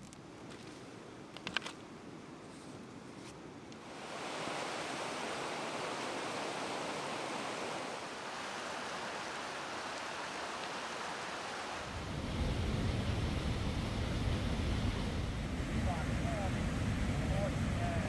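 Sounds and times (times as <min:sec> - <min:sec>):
river rushing over rocks: 0:03.8 - 0:11.9
wind buffeting microphone: 0:11.9 - 0:18.0.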